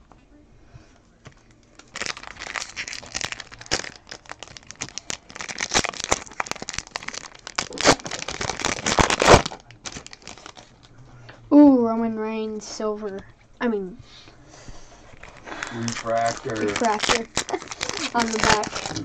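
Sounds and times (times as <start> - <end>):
foil card pack tearing and crinkling: 1.8 - 10.8, 15.2 - 19.0.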